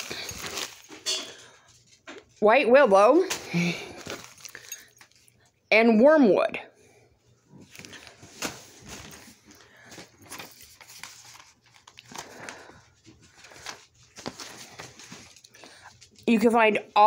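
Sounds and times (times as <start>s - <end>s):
plastic bags crinkling: 0.0s - 1.9s, 3.2s - 5.5s, 7.6s - 16.3s.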